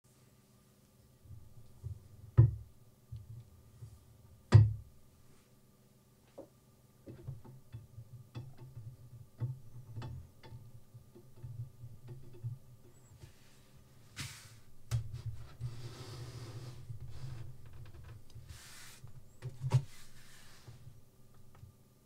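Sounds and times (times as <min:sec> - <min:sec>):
small irregular clicks: 0:07.0 - 0:13.0.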